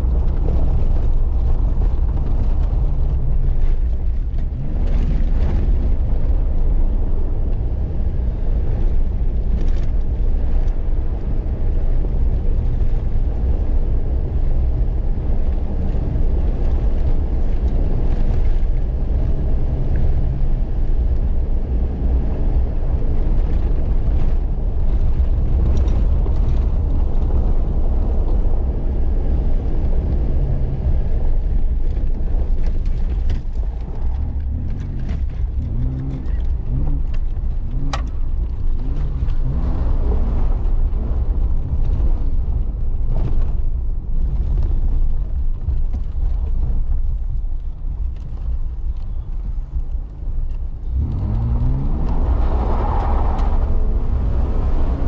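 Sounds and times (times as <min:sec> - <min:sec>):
tyre rumble: 0:31.3 - 0:55.0.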